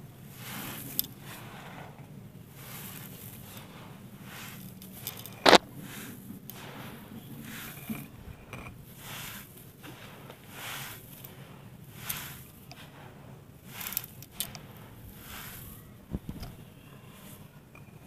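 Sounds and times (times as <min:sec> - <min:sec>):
dry clay grit pouring: 0:00.2 - 0:16.0
clay lumps clicking: 0:04.6 - 0:05.6.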